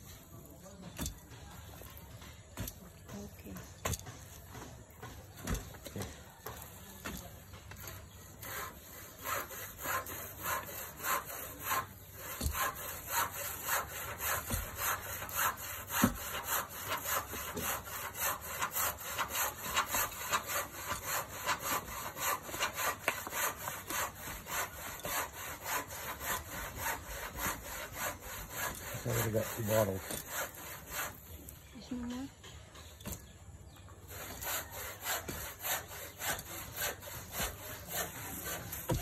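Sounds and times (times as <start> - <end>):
steel bar thudding on clay: 0.7 - 8.2, 12.3 - 12.8, 32.4 - 33.4, 37.3 - 39.0.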